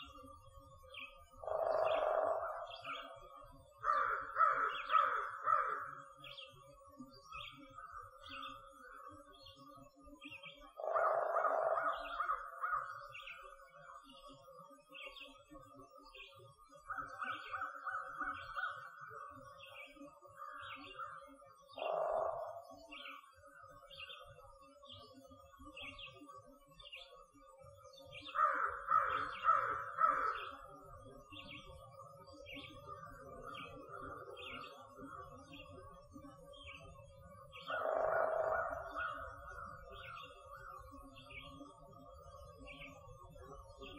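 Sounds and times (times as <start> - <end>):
crows cawing: 1.4 - 3.2, 3.8 - 6.1, 10.8 - 13.0, 21.8 - 22.8, 28.3 - 30.6, 37.7 - 39.8.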